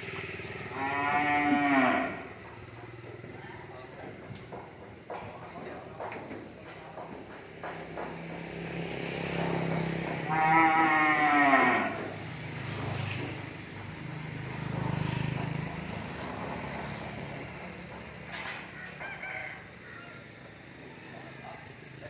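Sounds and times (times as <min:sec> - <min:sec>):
young bull mooing: 0:00.6 - 0:02.4, 0:10.2 - 0:12.2.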